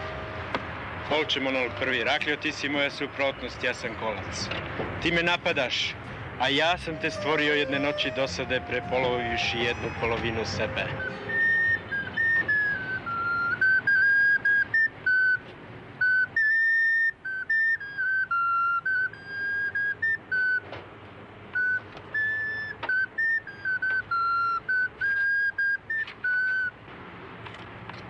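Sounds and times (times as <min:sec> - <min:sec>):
whistle-like wind instrument tune: 0:06.5 - 0:15.4, 0:16.0 - 0:20.7, 0:21.5 - 0:26.8.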